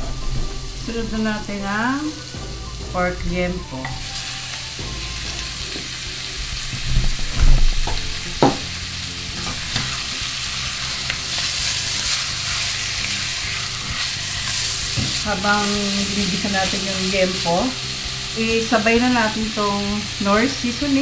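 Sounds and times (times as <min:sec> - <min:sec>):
meat sizzling in oil: 0:00.1 - 0:21.0
spatula knocking on pot: 0:07.8 - 0:08.7.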